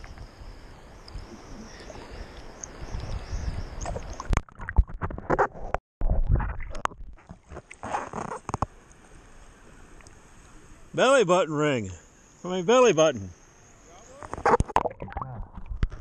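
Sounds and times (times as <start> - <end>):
water splashing: 1.0 - 5.4
water slapping and sloshing: 1.0 - 5.8.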